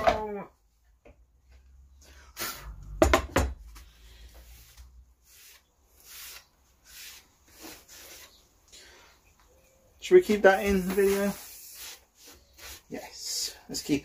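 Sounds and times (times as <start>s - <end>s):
paintbrush swishing on wood: 4.4s - 8.4s, 10.5s - 13.0s.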